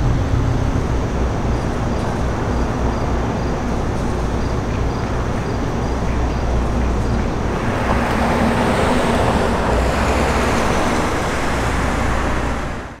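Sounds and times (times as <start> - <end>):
road traffic rumble: 0.0 - 13.0
vehicle passing: 6.7 - 13.0.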